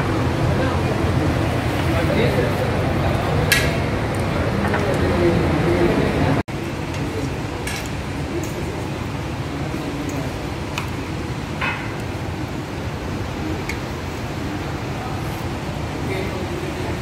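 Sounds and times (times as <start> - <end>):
restaurant dining room din: 0.0 - 17.0
dishes and cutlery clinking: 11.6 - 12.1.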